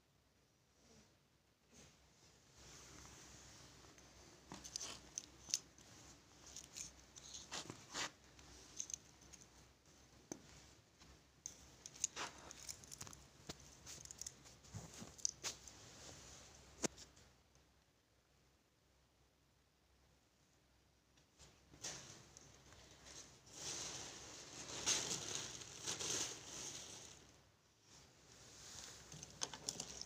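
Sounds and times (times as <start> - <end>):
handling clicks and rustles: 3.7 - 15.8, 28.8 - 30.0.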